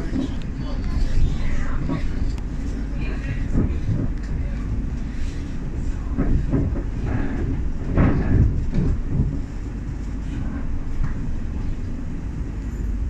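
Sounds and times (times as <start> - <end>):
train wheels rumbling on track: 0.0 - 13.0
knocks and clatters: 6.2 - 9.5.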